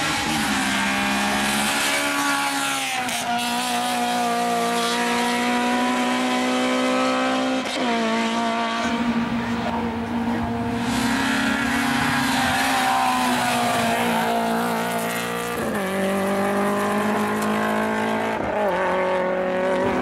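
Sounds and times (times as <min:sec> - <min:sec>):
race car engine running hard: 0:00.0 - 0:20.0.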